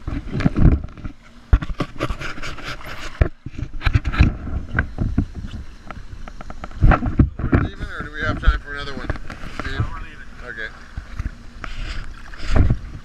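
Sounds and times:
camera knocking in water: 0:00.0 - 0:10.1
sea water splashing: 0:00.0 - 0:13.0.

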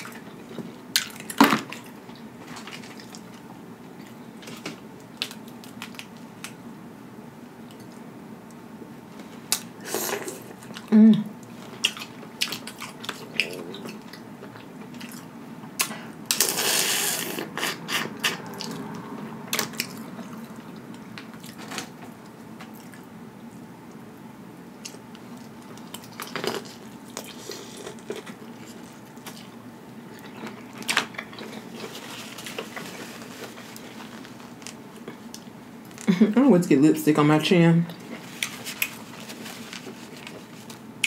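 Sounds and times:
chewing: 0:11.5 - 0:16.5, 0:24.8 - 0:36.1, 0:37.9 - 0:40.8.

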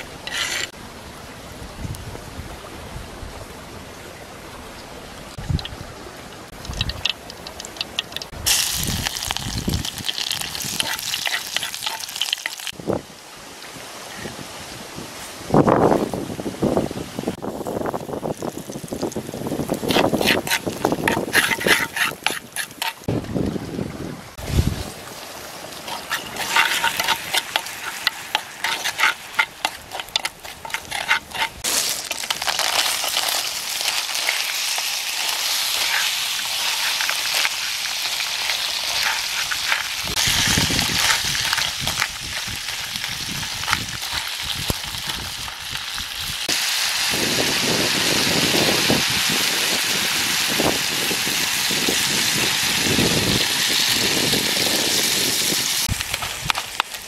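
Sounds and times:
metal spoon stirring: 0:00.0 - 0:00.7, 0:10.1 - 0:12.7, 0:19.9 - 0:23.1, 0:25.9 - 0:34.5, 0:35.2 - 0:40.0
shellfish sizzling in pan: 0:06.5 - 0:12.8, 0:17.7 - 0:23.1, 0:25.1 - 0:57.0
garlic sizzling in hot oil: 0:06.6 - 0:12.8, 0:17.7 - 0:23.1, 0:25.7 - 0:57.0.

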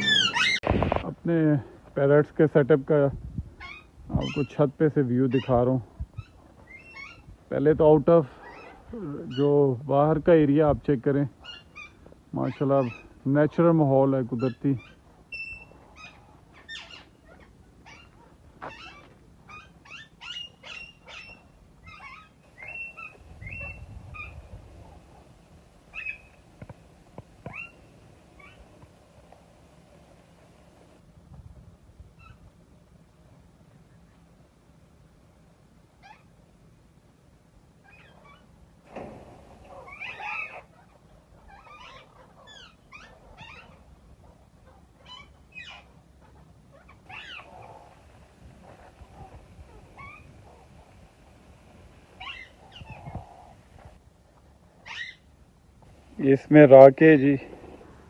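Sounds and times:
parrots screeching: 0:00.0 - 0:00.6, 0:06.2 - 0:07.3, 0:14.4 - 0:24.3, 0:25.9 - 0:26.3, 0:27.5 - 0:27.8, 0:39.7 - 0:43.8, 0:45.0 - 0:48.0, 0:48.7 - 0:50.6, 0:52.2 - 0:53.6, 0:54.8 - 0:55.2.

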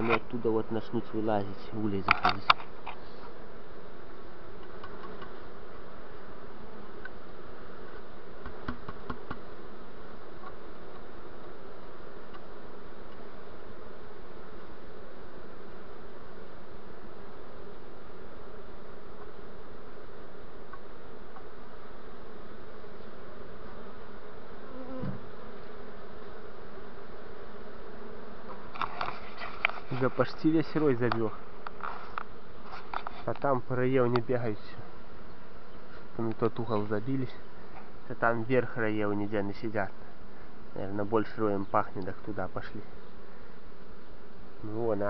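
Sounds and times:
bees buzzing: 0:00.0 - 0:44.8
honeybee swarm humming: 0:00.0 - 0:45.0.

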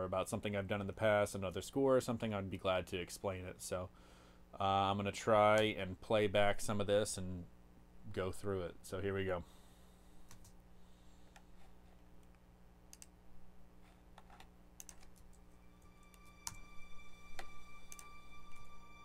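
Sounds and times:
keyboard and mouse clicks: 0:12.2 - 0:13.2, 0:14.1 - 0:15.6
orchestral music playback: 0:15.6 - 0:19.0.

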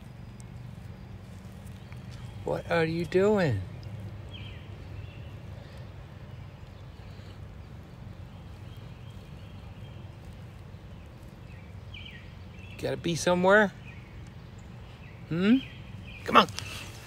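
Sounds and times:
footsteps on gravel: 0:00.0 - 0:02.7, 0:16.2 - 0:17.0.

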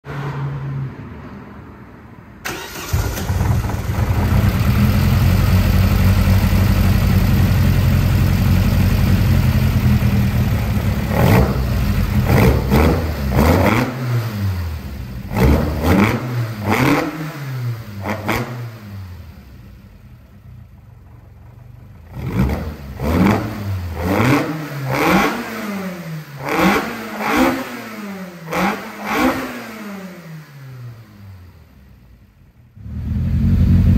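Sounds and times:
car engine starting and idling: 0:02.4 - 0:24.4, 0:30.4 - 0:33.9.

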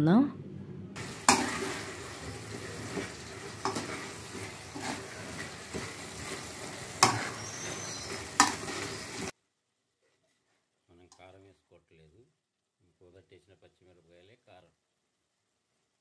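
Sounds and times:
metal spoon scraping a pan: 0:01.0 - 0:09.3
spoon knocking on pan: 0:01.0 - 0:09.3
curry sizzling: 0:01.0 - 0:09.4.

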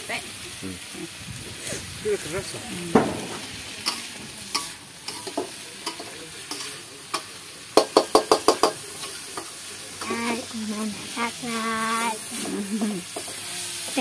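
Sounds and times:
food sizzling: 0:00.0 - 0:14.0
spatula scraping wok: 0:01.5 - 0:14.0
spatula tapping wok: 0:03.0 - 0:10.2, 0:12.4 - 0:14.0.

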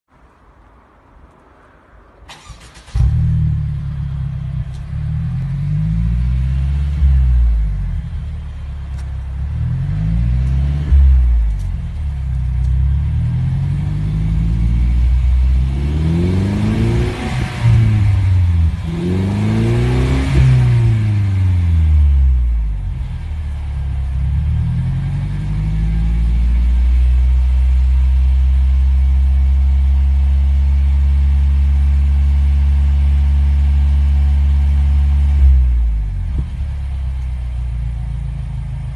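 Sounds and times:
car engine revving through exhaust: 0:02.9 - 0:29.1.

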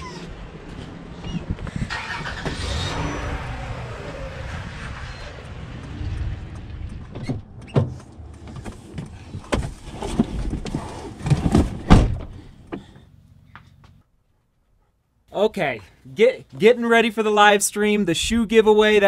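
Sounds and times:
traffic noise: 0:00.0 - 0:14.0
car door: 0:11.2 - 0:12.9.

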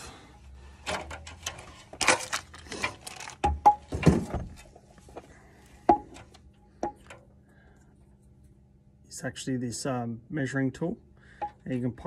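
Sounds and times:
plastic packet rustling: 0:01.8 - 0:03.5.

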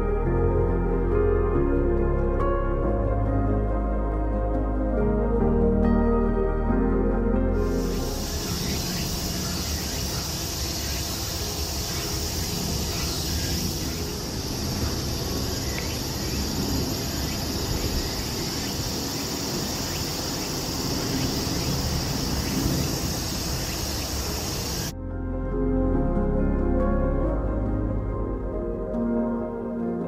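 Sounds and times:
insects shrilling: 0:07.6 - 0:24.9.

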